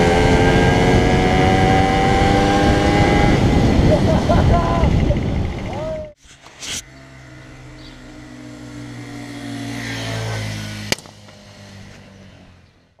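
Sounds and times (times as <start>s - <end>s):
small motorcycle engine idling: 6.9s - 12.9s.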